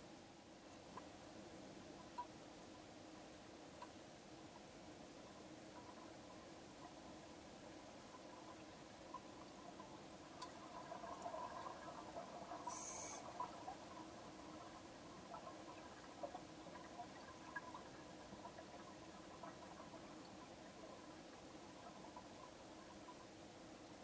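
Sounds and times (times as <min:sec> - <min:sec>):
low steady hum: 0:00.0 - 0:24.0
underwater bubbles ticking: 0:05.3 - 0:24.0
brief hiss: 0:12.7 - 0:13.3.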